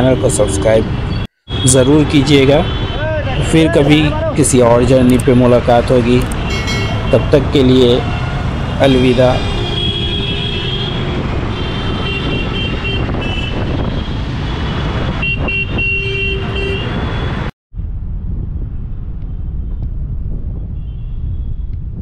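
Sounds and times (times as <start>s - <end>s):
car horns honking: 0.0s - 3.2s, 6.3s - 17.5s
road traffic: 0.0s - 22.0s.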